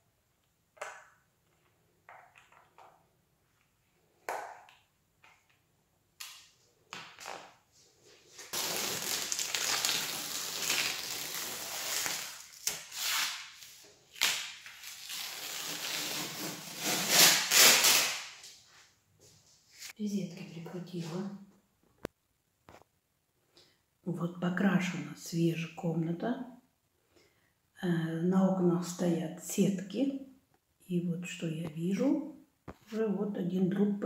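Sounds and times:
masking tape peeling: 0:08.4 - 0:18.5.

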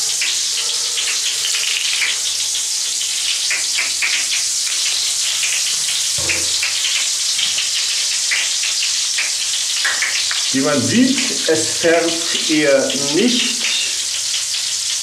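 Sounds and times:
bath granules crackling and hissing: 0:10.3 - 0:15.0.

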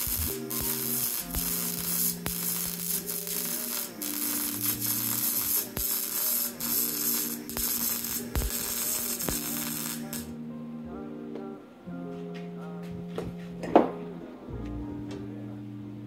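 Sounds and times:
welding arc crackling: 0:00.0 - 0:10.4
music with held notes: 0:00.0 - 0:16.0.

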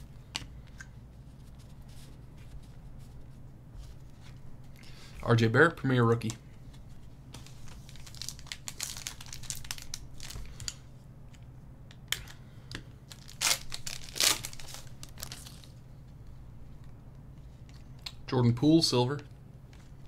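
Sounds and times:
foil wrapper crinkling and tearing: 0:07.4 - 0:10.8, 0:13.1 - 0:15.7.

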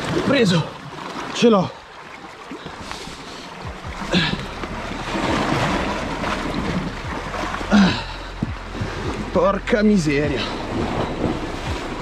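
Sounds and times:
sea surf washing against rocks: 0:00.0 - 0:07.9
vocal grunt: 0:07.7 - 0:08.2.

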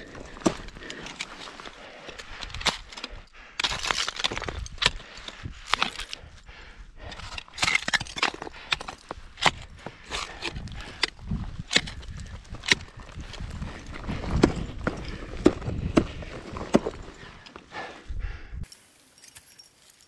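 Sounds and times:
ice axes striking ice: 0:03.6 - 0:06.2, 0:07.5 - 0:12.9.

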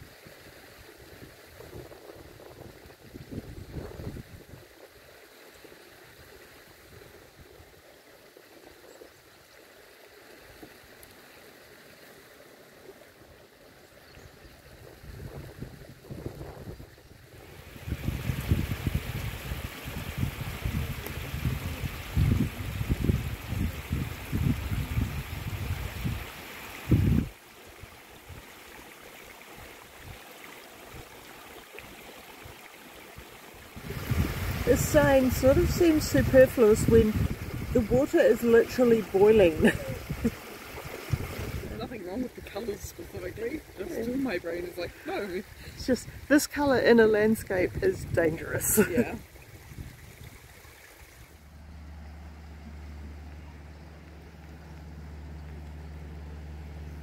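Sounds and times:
geyser water rushing and splashing: 0:00.0 - 0:55.8
wind buffeting microphone: 0:01.5 - 0:04.7, 0:14.3 - 0:27.3, 0:33.8 - 0:44.4, 0:45.7 - 0:51.3.

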